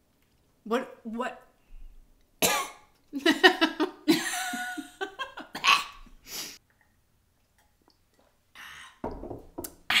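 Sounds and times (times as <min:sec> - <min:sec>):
women laughing: 0:03.2 - 0:05.6.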